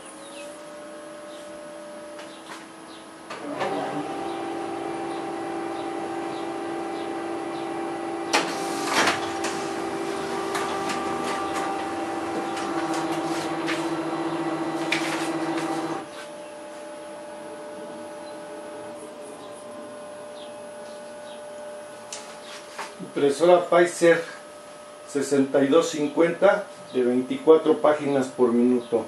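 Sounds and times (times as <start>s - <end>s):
printer motor hum: 0.0s - 28.9s
paper feed clicks: 10.4s - 14.0s.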